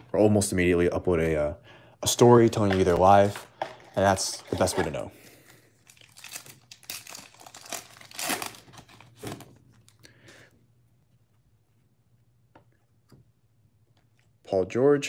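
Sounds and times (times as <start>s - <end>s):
foil wrapper crinkling and tearing: 5.8s - 9.9s.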